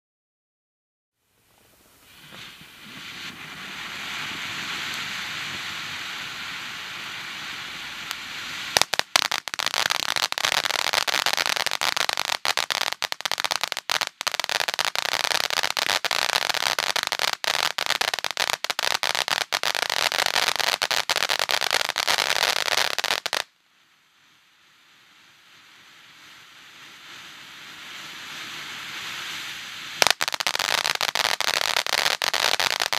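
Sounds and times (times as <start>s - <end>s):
firework dense crackling: 1.2s - 32.9s
firework fountain hissing: 1.4s - 23.5s, 24.6s - 32.9s.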